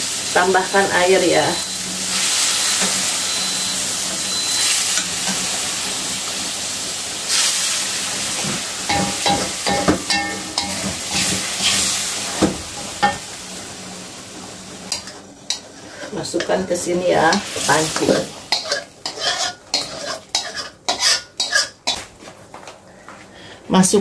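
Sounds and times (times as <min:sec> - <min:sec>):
spice paste sizzling in wok: 0:00.0 - 0:22.0
spatula scraping and knocking wok: 0:08.1 - 0:13.3, 0:14.9 - 0:22.2.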